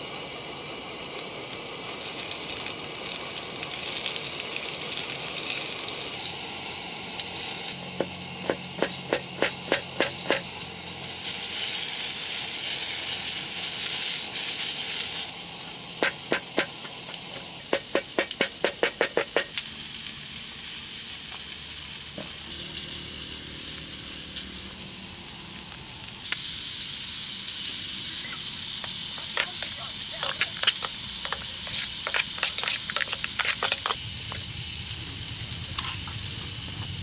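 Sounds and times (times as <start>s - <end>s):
food sizzling in a pan: 0.0s - 37.0s.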